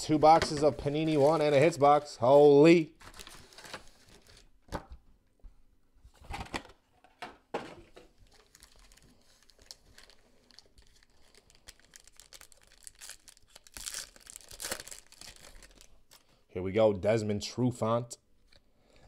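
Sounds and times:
foil wrappers crinkling: 0.5s - 2.0s, 3.0s - 4.5s, 8.2s - 16.3s.

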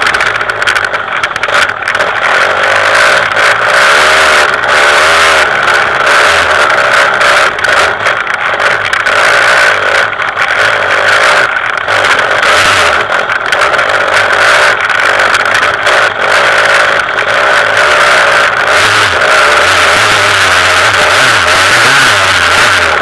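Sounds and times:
two-stroke motorcycle engine revving: 0.0s - 23.0s.

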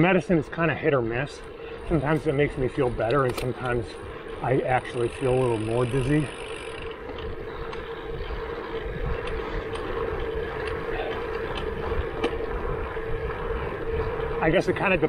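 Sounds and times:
bicycle tyre hum on asphalt: 0.0s - 15.0s
wind rumble on microphone: 6.9s - 15.0s.

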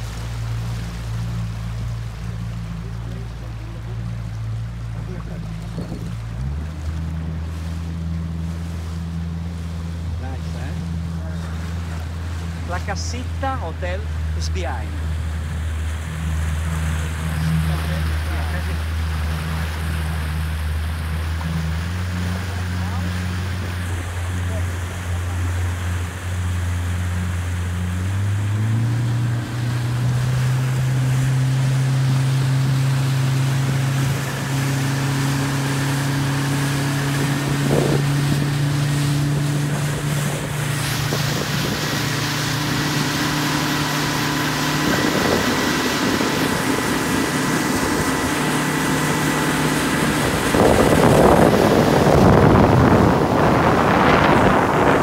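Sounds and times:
motorboat engine running: 0.0s - 55.0s
water rushing along hull: 0.0s - 55.0s
wind on microphone: 5.5s - 7.4s, 15.0s - 55.0s.

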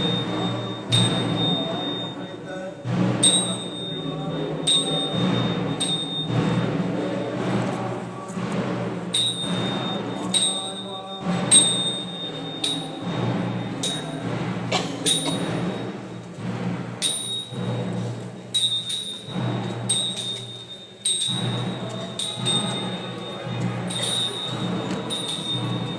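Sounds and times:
metal bell struck: 0.0s - 2.3s, 3.2s - 6.8s, 9.1s - 14.3s, 17.0s - 25.9s
drum thuds: 0.0s - 25.9s.

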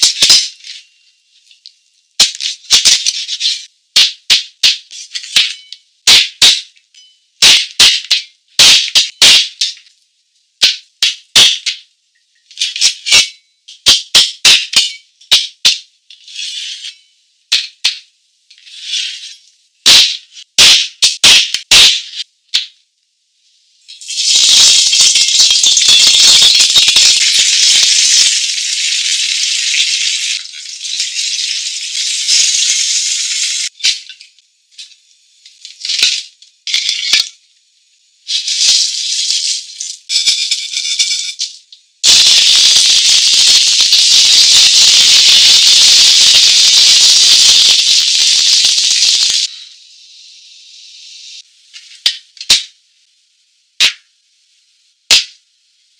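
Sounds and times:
hot oil sizzling and crackling: 0.0s - 1.0s, 7.4s - 8.0s, 8.6s - 9.7s, 19.8s - 22.0s, 23.5s - 34.2s, 38.0s - 52.8s.

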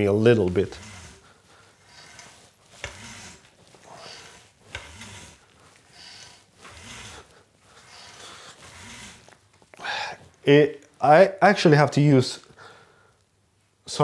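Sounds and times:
camera support arm creaking: 0.4s - 9.7s.

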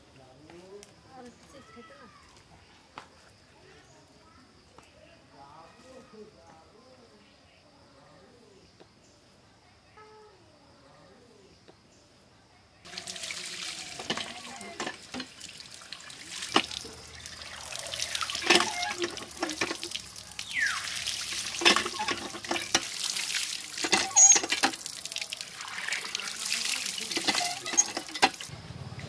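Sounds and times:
water gushing and splashing: 12.9s - 28.5s
hand pump knocking and clanking: 13.9s - 15.4s, 16.5s - 17.1s, 18.0s - 20.1s, 21.3s - 24.9s, 26.7s - 28.5s.

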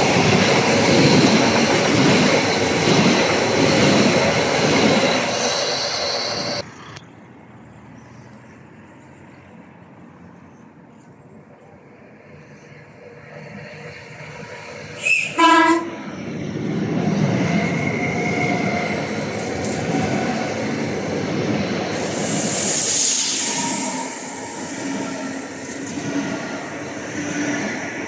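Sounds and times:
train rumbling past: 0.0s - 28.0s
train horn: 15.0s - 16.0s
loud hiss: 22.0s - 25.6s.

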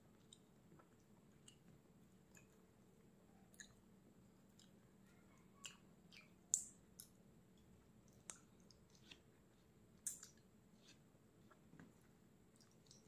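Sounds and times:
mouth clicks and smacks eating: 0.2s - 2.6s, 3.5s - 3.8s, 4.5s - 4.8s, 5.4s - 9.3s, 10.0s - 11.9s, 12.5s - 13.0s.

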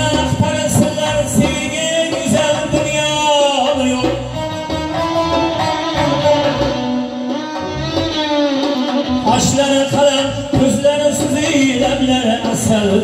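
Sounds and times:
frame drums: 0.0s - 13.0s
keyboard: 0.0s - 13.0s
plucked lute melody: 4.3s - 8.1s.

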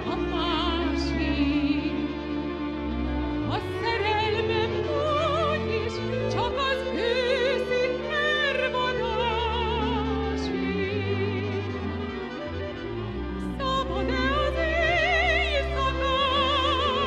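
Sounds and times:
instrumental accompaniment: 0.0s - 17.0s
woman singing with vibrato: 3.5s - 12.0s, 13.4s - 17.0s.

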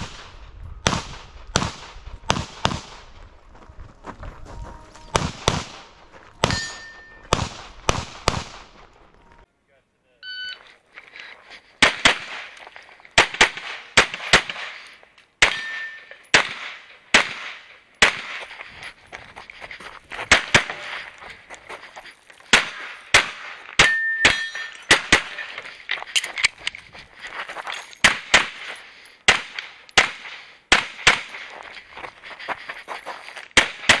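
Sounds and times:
pistol shots: 0.0s - 3.1s, 5.1s - 8.8s, 11.8s - 12.6s, 13.2s - 18.5s, 20.3s - 21.0s, 22.5s - 25.6s, 28.0s - 28.7s, 29.3s - 31.5s, 33.6s - 34.0s
steel target ringing: 6.4s - 7.3s, 15.4s - 16.3s, 23.8s - 25.6s.

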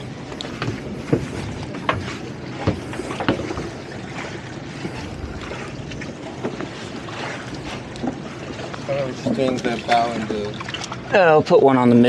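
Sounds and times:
water around boats: 0.0s - 12.0s
wind on microphone: 4.7s - 6.3s.

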